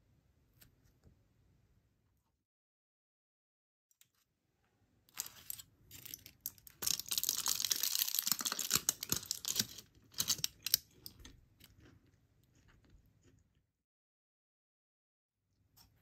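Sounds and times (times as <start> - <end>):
packaging crinkling and tearing: 5.1 - 11.2.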